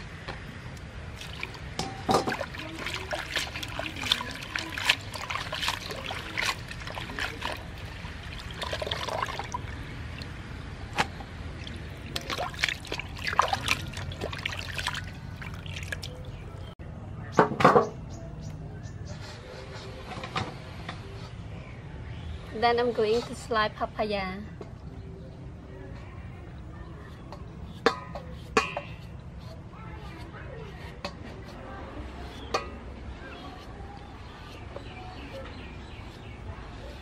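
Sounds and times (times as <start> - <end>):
hands splashing water in bowl: 1.2 - 10.3, 11.6 - 16.4.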